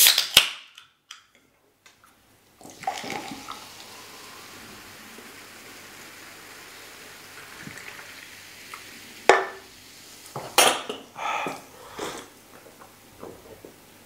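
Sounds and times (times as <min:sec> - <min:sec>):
faint fizzing: 0:02.5 - 0:12.4
drink pouring into a glass: 0:02.6 - 0:09.7.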